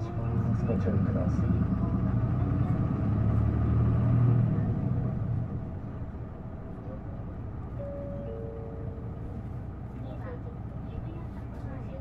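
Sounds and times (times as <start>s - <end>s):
bus diesel engine droning: 0.0s - 12.0s.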